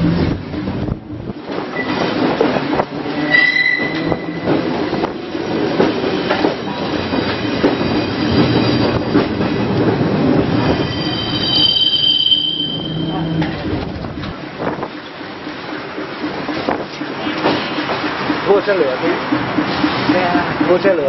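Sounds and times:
steel wheels rumbling on rail: 0.0 - 21.0
streetcar rattling: 0.0 - 21.0
high-pitched wheel squeals: 3.2 - 4.5, 10.6 - 13.6.

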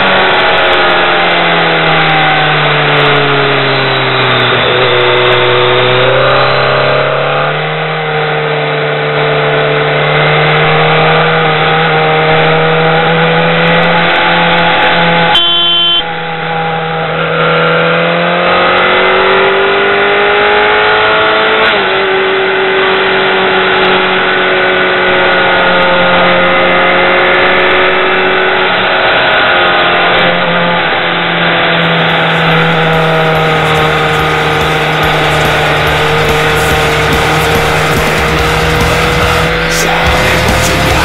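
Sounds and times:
motorcycle engine running: 31.8 - 41.0.

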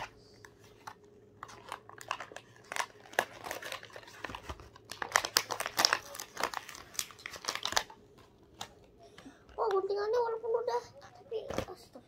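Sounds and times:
plastic packaging crinkling: 0.0 - 8.9
scissors cutting plastic: 0.8 - 8.8.

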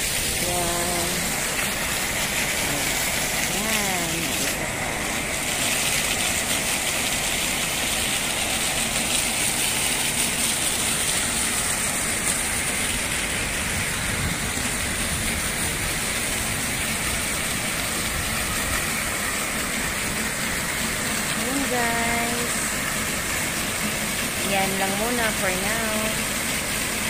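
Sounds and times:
fountain jets splashing into pool: 0.0 - 27.0.

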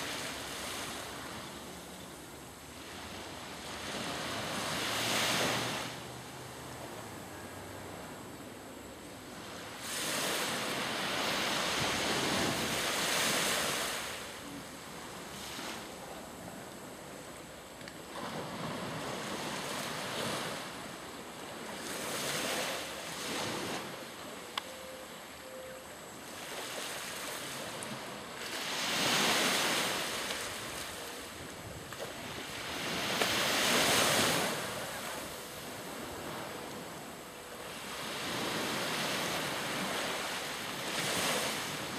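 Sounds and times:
small sea waves breaking: 2.7 - 6.2, 9.4 - 15.9, 18.1 - 24.2, 26.3 - 41.9.

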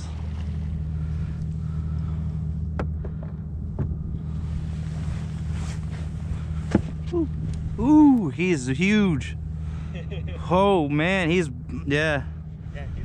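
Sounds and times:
steady low hum: 0.0 - 13.0
pole knocking against hull: 2.8 - 4.0, 6.7 - 7.1.

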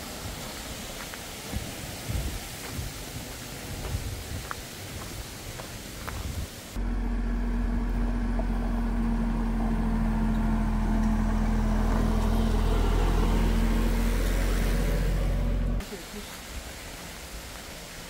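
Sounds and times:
tractor diesel engine running: 6.8 - 15.8.

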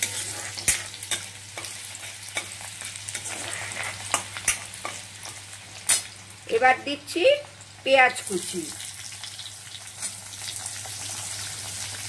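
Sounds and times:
metal spoon scraping pan: 0.0 - 5.1
garlic sizzling in hot oil: 0.0 - 12.0.

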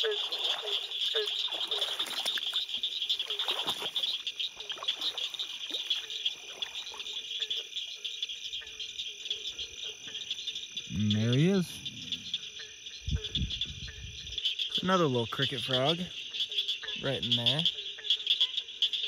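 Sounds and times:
rustling of grass and water: 0.0 - 11.9
frog chorus clicking trill: 0.0 - 19.0
low frog call: 0.0 - 19.0.

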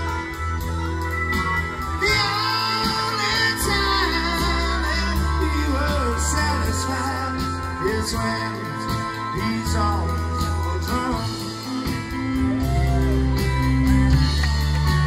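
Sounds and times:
rock band playing: 0.0 - 15.0
lead vocal singing: 1.7 - 13.2.

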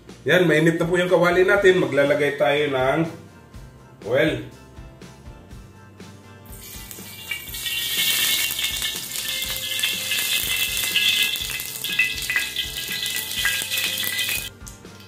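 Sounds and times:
light background music: 0.0 - 15.0
oil sizzling in a wok: 6.4 - 14.8.

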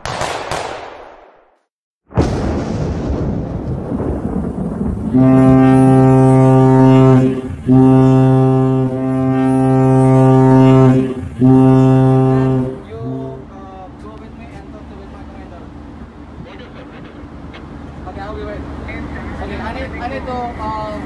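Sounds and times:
rushing background noise: 3.9 - 21.0
ship's horn blasts: 5.1 - 14.6.

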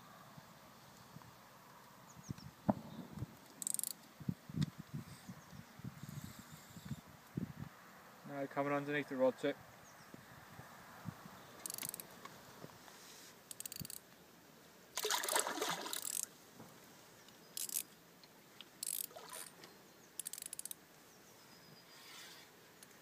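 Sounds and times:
fishing reel ratcheting clicks: 3.6 - 4.0, 11.6 - 12.1, 13.5 - 14.0, 15.9 - 16.3, 17.6 - 17.9, 18.8 - 19.2, 20.2 - 20.8.

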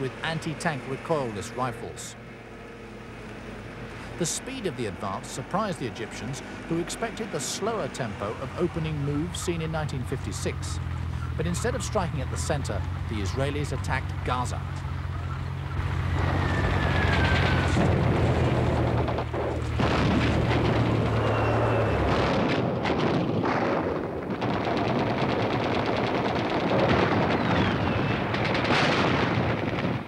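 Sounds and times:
low heavy engine drone: 0.0 - 30.0
booming explosions: 15.8 - 30.0
gunfire: 19.8 - 30.0
short falling whistles: 21.1 - 22.1.

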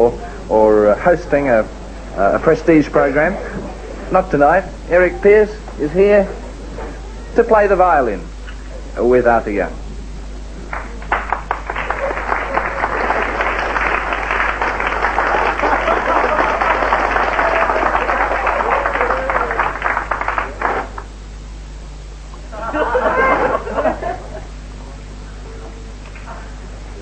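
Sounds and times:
audience applauding: 10.7 - 21.1.

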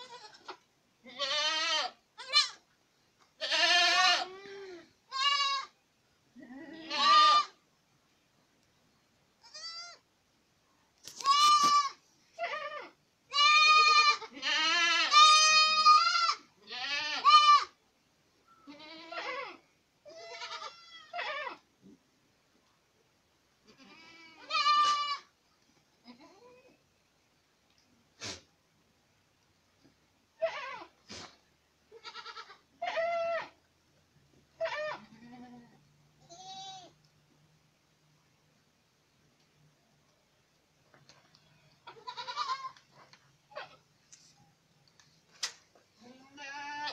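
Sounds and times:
goats bleating: 0.0 - 2.6, 3.4 - 5.8, 6.4 - 7.6, 11.2 - 17.8, 18.7 - 21.6, 23.7 - 25.3, 31.9 - 33.6, 41.8 - 42.8, 46.0 - 46.9.

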